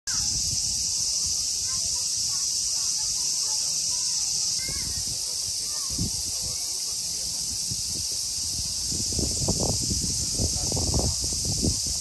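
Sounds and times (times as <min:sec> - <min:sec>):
wind rumble on microphone: 0:00.1 - 0:02.0, 0:04.6 - 0:12.0
cicadas chorus: 0:00.1 - 0:12.0
faint distant voices: 0:00.1 - 0:12.0.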